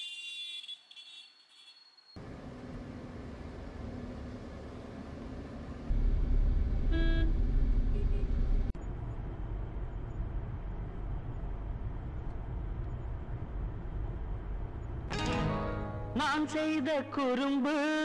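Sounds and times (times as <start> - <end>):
vehicle horn honking: 0.0 - 1.8, 6.9 - 7.3
street traffic rumbling: 2.2 - 15.6.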